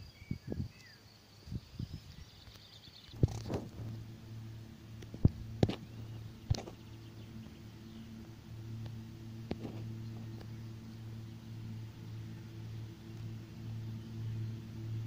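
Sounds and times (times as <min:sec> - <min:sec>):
distant tractor engine humming: 0:03.1 - 0:15.0.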